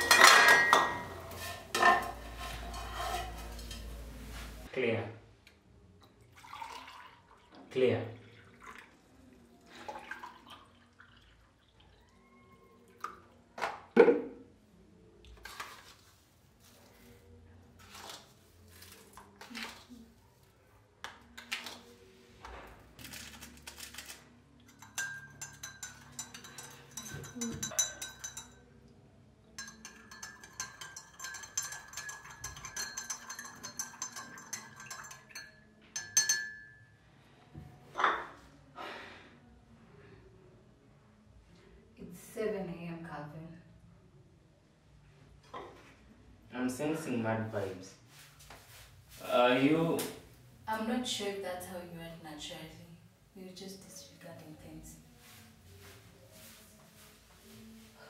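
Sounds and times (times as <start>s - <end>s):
teaspoon clinking in mugs: 0.0s - 4.0s, 24.6s - 28.8s, 29.6s - 37.0s
water pouring into a mug: 6.1s - 13.1s, 29.9s - 35.5s.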